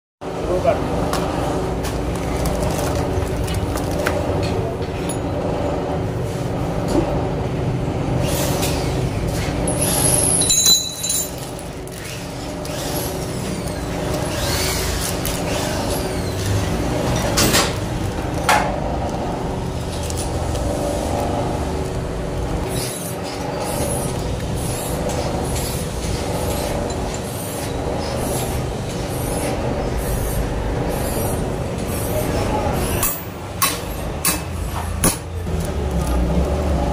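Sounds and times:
steady mechanical hum: 0:00.2 - 0:36.9
small metal parts clicking: 0:09.7 - 0:12.9.

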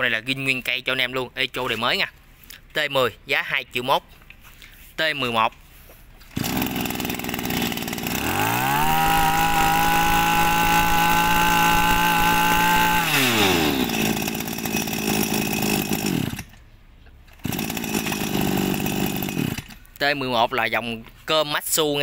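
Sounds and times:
brush cutter engine revving: 0:06.3 - 0:16.6, 0:17.3 - 0:19.8.

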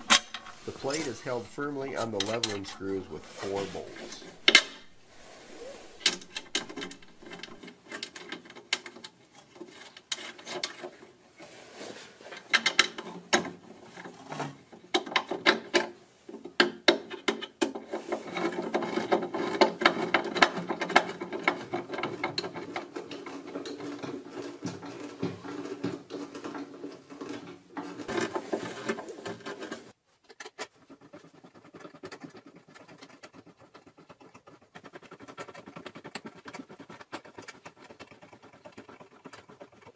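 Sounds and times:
faint scratching and taps: 0:00.0 - 0:11.0
metal clicks and scraping: 0:00.0 - 0:11.2, 0:12.2 - 0:39.9.

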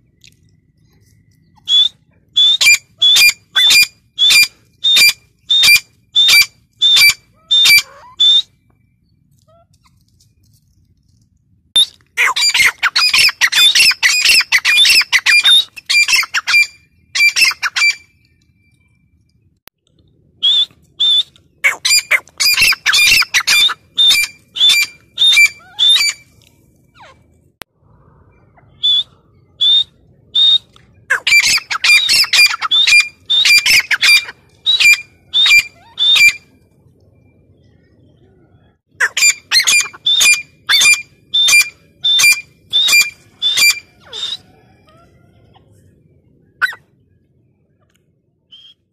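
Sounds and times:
francolin calling: 0:00.7 - 0:09.8, 0:28.6 - 0:36.5.

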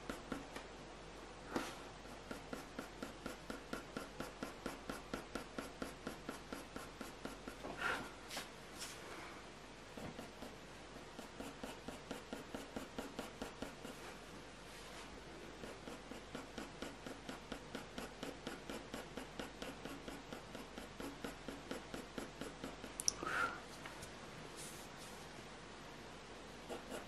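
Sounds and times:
pencil scratching on paper: 0:00.0 - 0:00.6, 0:01.5 - 0:08.0, 0:09.9 - 0:23.0, 0:26.6 - 0:27.0.

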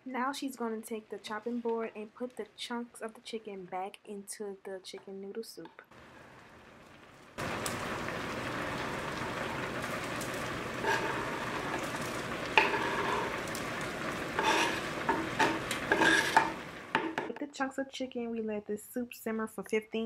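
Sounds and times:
soup bubbling in a pot: 0:05.9 - 0:17.3
cutting board scraping a pot: 0:10.8 - 0:13.4, 0:14.4 - 0:17.3.

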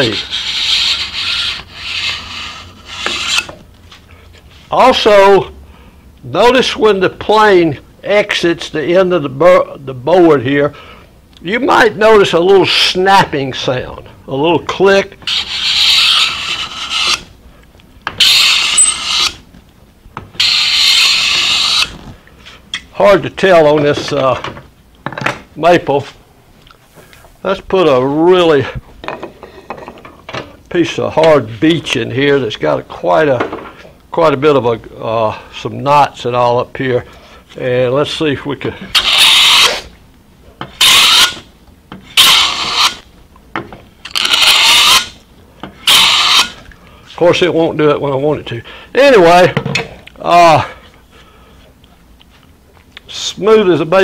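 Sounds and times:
scraper rasping along wood: 0:00.0 - 0:03.5, 0:15.3 - 0:17.3, 0:20.4 - 0:21.9, 0:42.2 - 0:43.0.

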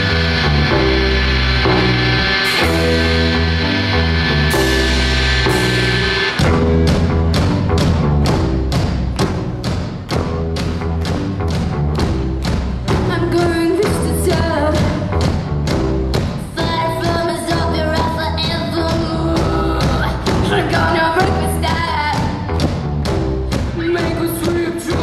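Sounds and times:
live rock band playing: 0:00.0 - 0:25.0
woman singing lead vocals: 0:13.0 - 0:15.2, 0:16.4 - 0:22.5, 0:23.5 - 0:25.0.

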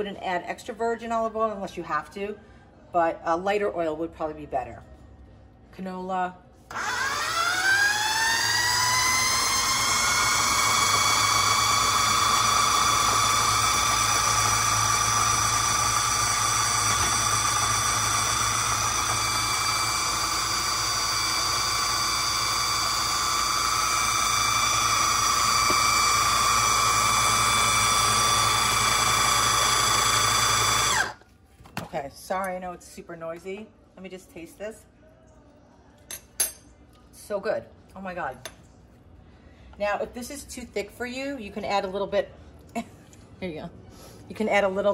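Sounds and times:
electric blender whining: 0:06.7 - 0:31.2.

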